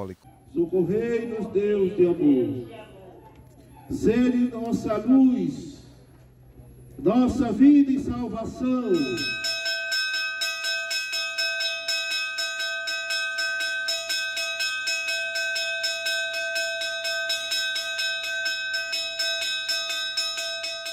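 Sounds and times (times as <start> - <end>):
altar bell rung rapidly: 8.2 - 20.9.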